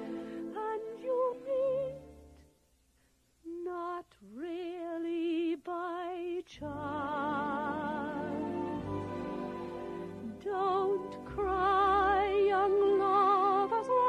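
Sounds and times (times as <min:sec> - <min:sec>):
woman singing with vibrato: 0:00.0 - 0:02.1, 0:03.5 - 0:08.8, 0:10.2 - 0:14.0
orchestral accompaniment: 0:07.0 - 0:14.0.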